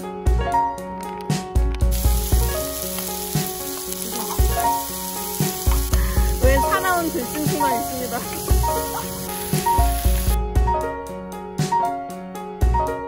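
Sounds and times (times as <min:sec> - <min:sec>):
steady hiss: 0:01.8 - 0:10.4.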